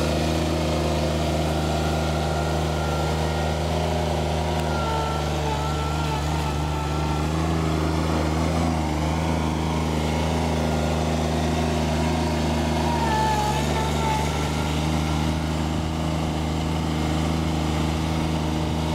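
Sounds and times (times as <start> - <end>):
diesel mower engine running: 0.0 - 18.9.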